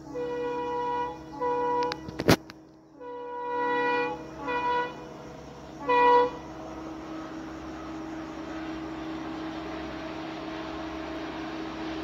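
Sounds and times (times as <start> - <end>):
locomotive air horn blasts: 0.0 - 2.3, 3.0 - 8.0
diesel engines droning: 0.0 - 12.0.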